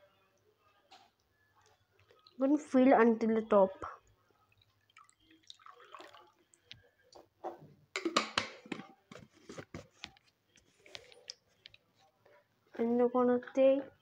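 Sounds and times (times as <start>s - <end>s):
water trickling into plastic cup: 4.4s - 7.1s.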